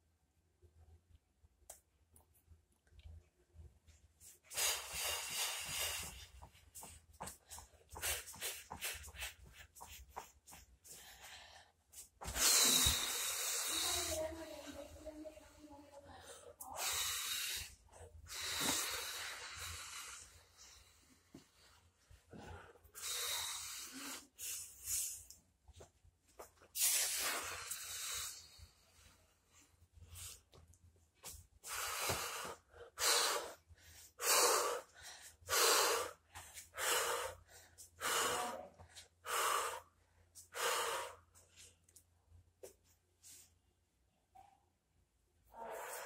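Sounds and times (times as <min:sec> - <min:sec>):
person breathing hard: 0:04.2 - 0:14.9, 0:16.2 - 0:25.3, 0:31.6 - 0:41.4.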